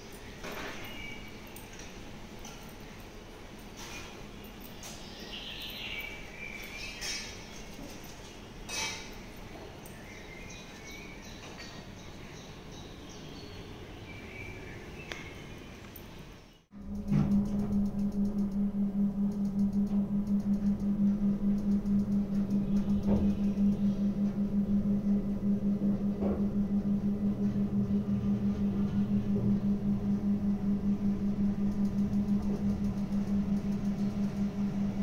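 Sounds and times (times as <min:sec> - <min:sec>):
ship machinery humming: 0:16.7 - 0:35.0.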